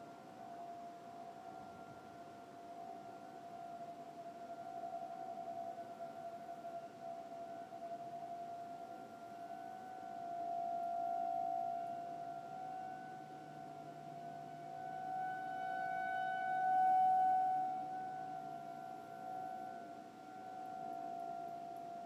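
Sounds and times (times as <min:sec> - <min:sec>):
warning siren: 0:08.8 - 0:22.0.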